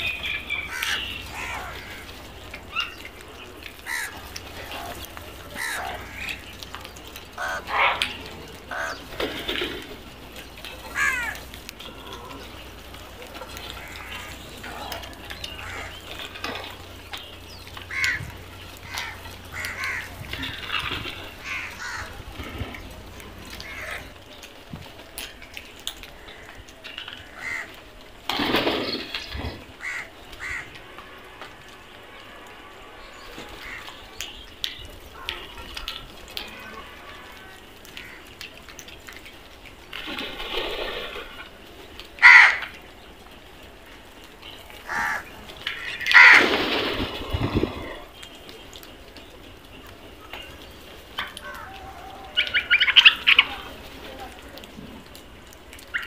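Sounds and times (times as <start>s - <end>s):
crows cawing: 0.6s - 3.1s, 3.7s - 10.0s, 10.7s - 16.9s, 17.8s - 24.2s, 26.1s - 27.8s, 29.8s - 30.8s, 33.5s - 34.1s, 35.0s - 38.4s, 42.2s - 42.8s, 44.8s - 48.1s, 51.2s - 53.6s.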